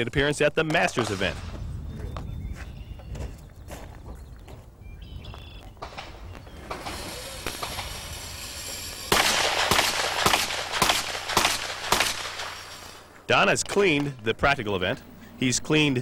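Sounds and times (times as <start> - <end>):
pistol shots: 0.7 - 1.5, 9.1 - 13.0.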